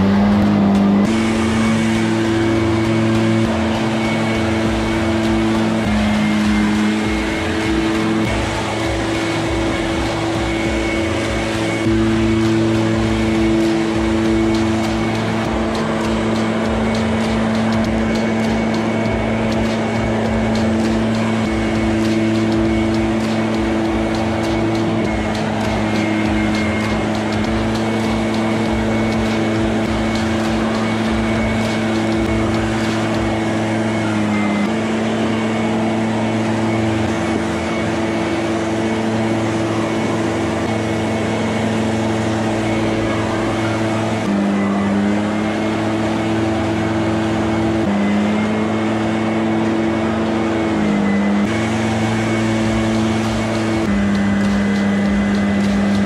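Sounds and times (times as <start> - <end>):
leaf blower whine: 0.0 - 56.0.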